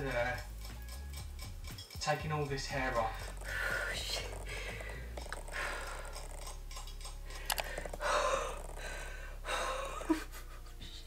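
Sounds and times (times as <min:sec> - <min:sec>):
scissors clicking: 0:02.8 - 0:08.7.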